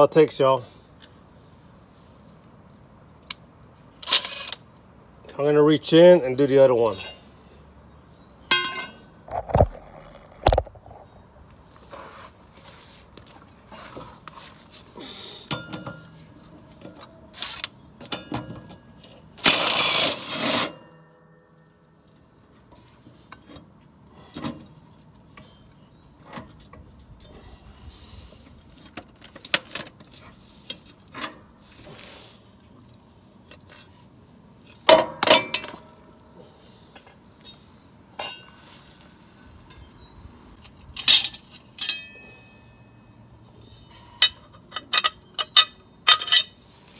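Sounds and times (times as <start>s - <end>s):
sharp metal clanks: 8.4s - 9.1s, 41.0s - 42.9s, 44.1s - 46.6s
impact wrench burst: 19.4s - 20.8s.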